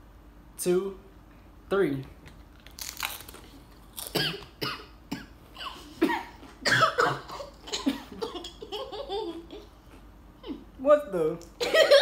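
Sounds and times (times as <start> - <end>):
child coughing: 4.1 - 8.1.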